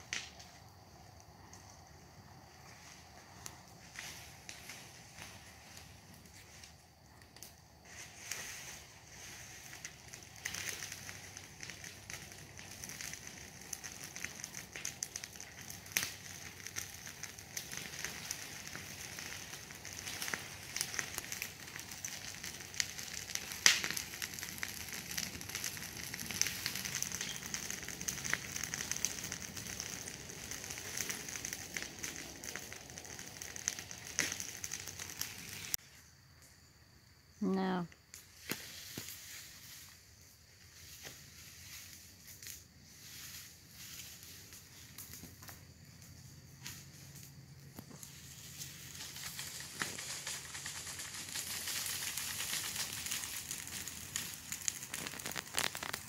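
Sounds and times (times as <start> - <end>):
insects chirring: 0.0 - 56.0
dense irregular crackling: 2.6 - 35.8, 47.6 - 56.0.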